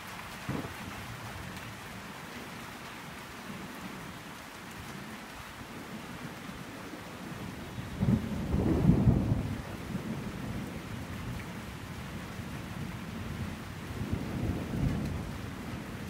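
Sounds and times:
steady rain falling: 0.0 - 16.0
thunder rumbling: 7.4 - 16.0.

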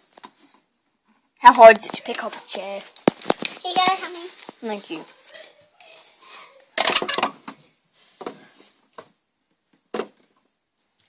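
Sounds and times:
toy furniture knocking and clattering: 6.8 - 7.6.

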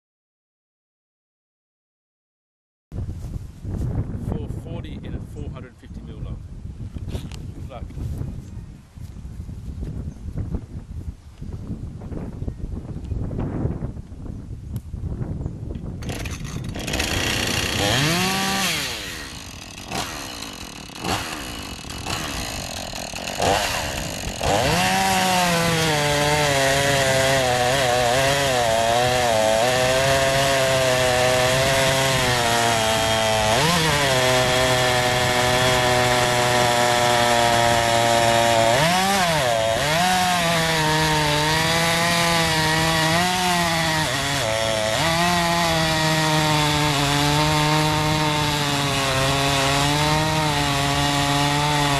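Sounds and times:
chainsaw cutting through log: 16.0 - 51.9
chainsaw idling: 16.0 - 51.9.

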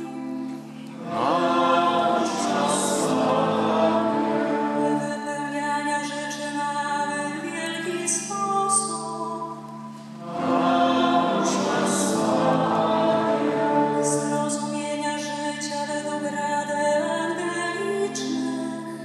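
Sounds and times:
sung litany: 0.0 - 18.9.

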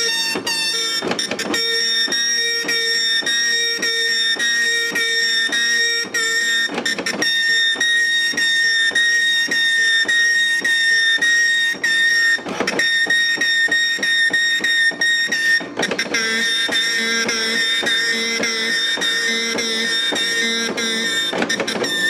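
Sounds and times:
dot matrix printer buzzing: 0.0 - 22.0.

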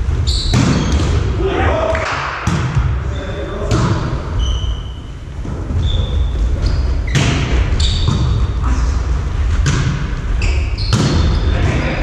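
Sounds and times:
volleyball struck: 2.2 - 3.0, 10.9 - 11.4
shoes squeaking on wooden floor: 4.4 - 8.5.

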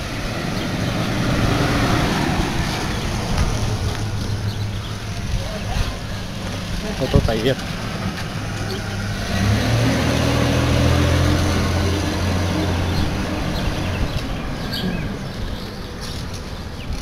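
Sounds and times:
vehicle engine hum: 0.0 - 17.0.

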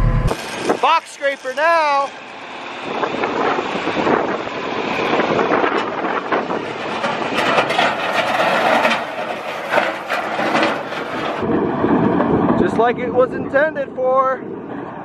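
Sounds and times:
steel scraper on frozen ground: 0.2 - 4.3, 5.8 - 11.4.

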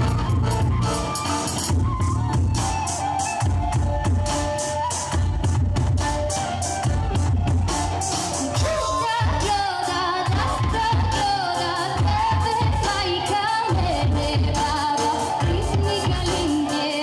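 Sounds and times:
accordion: 0.0 - 8.8
drum beat: 6.8 - 9.7, 10.3 - 11.4
woman singing: 8.6 - 17.0.

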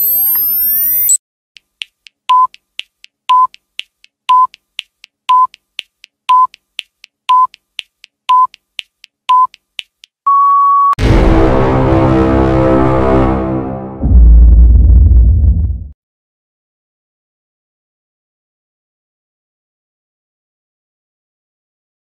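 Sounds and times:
short electronic beeps: 0.0 - 1.2, 2.3 - 2.5, 10.3 - 11.0.

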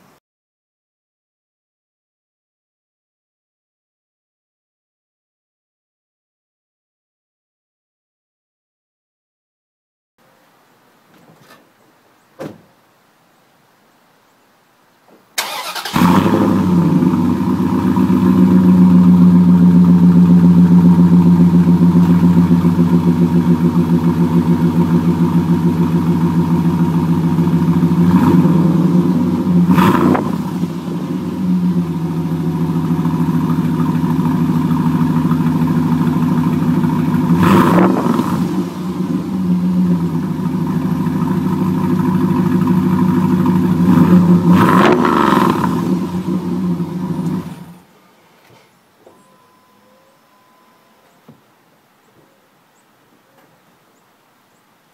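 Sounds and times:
engine cranking and starting: 15.4 - 17.2
engine idling: 15.4 - 47.9.

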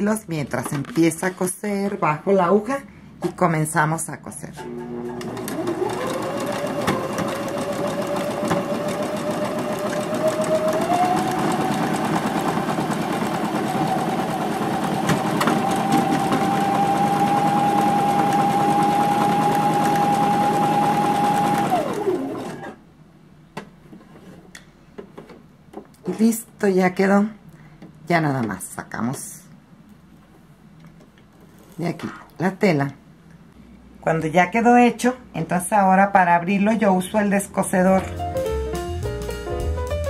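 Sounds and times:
sewing machine stitching: 4.6 - 22.8.

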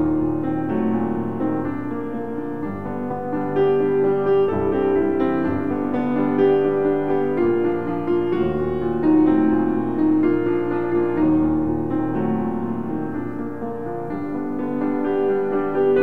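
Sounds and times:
piano playing slow chords: 0.0 - 16.0.

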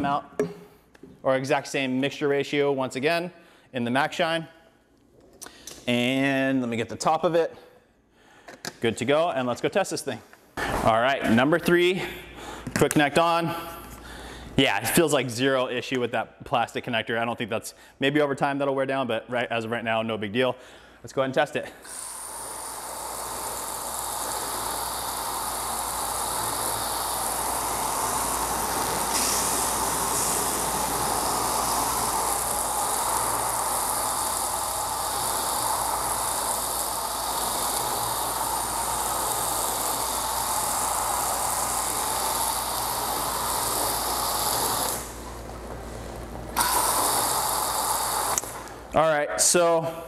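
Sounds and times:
foam gun spraying: 21.8 - 48.9.

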